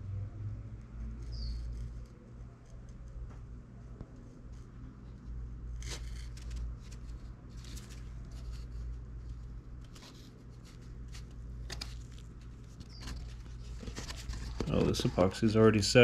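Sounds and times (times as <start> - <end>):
steady low hum: 0.0 - 16.0
gloved hands scraping plastic: 5.8 - 15.5.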